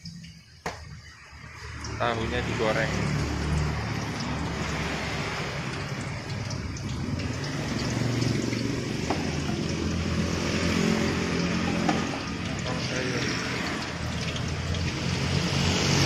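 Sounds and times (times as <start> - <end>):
tofu sizzling in hot oil: 3.2 - 16.0.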